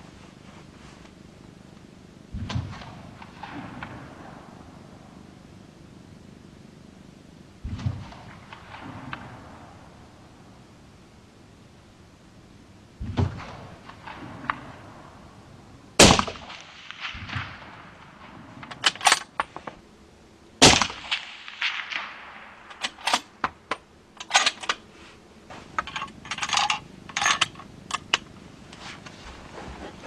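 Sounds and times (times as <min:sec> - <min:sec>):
suppressed rifle shots: 0:02.4 - 0:04.8, 0:13.0 - 0:15.3, 0:16.0 - 0:19.5, 0:20.6 - 0:24.8.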